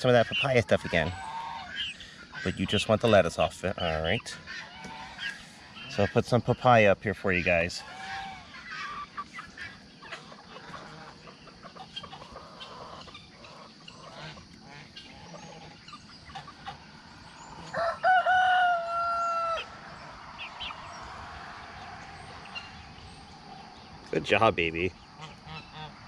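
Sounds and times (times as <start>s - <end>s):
chickens clucking: 0.0s - 26.0s
rooster crowing: 17.4s - 22.6s.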